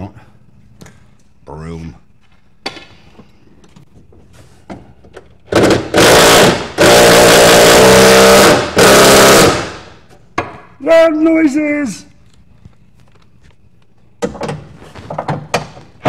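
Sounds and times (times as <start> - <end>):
impact wrench bursts: 5.4 - 10.0.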